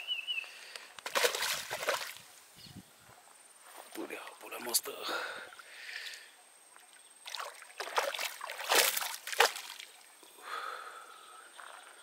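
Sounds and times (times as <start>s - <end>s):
fish splashing at water surface: 1.0s - 2.2s, 7.2s - 9.9s
sharp water slap: 1.0s - 2.2s, 7.3s - 9.9s.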